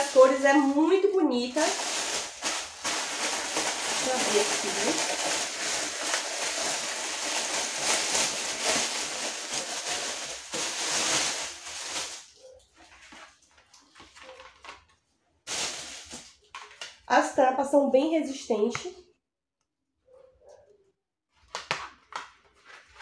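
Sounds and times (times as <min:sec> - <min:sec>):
plastic wrap crinkling and tearing: 0:00.0 - 0:17.1.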